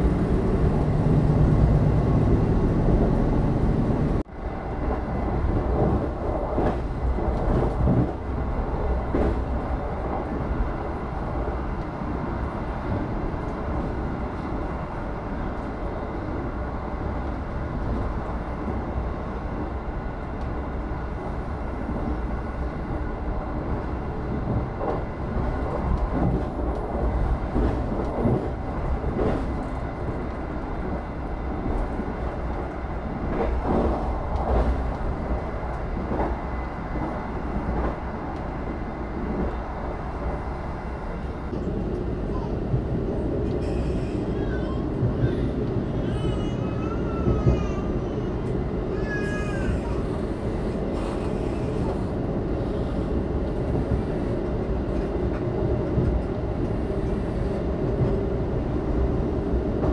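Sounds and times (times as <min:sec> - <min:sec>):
train rumbling on rails: 0:00.0 - 0:59.9.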